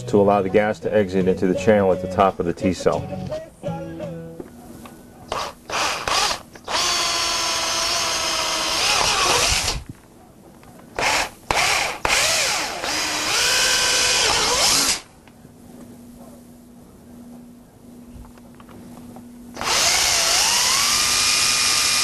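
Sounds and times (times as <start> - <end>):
electric drill whining: 5.3 - 9.8, 11.0 - 15.1, 19.6 - 22.0.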